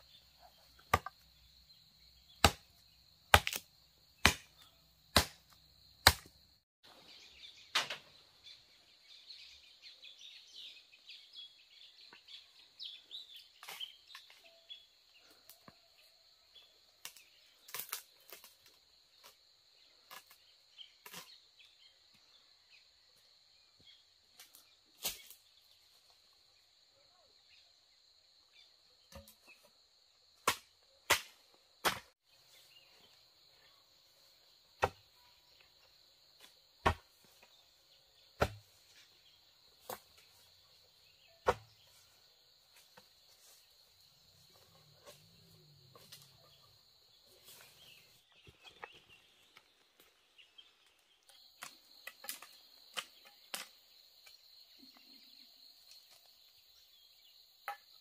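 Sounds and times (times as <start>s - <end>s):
chopping blows on bamboo: 2.4s - 2.7s, 3.3s - 6.3s, 30.4s - 32.2s, 34.8s - 35.0s, 36.8s - 37.0s, 38.4s - 38.7s, 41.4s - 41.7s.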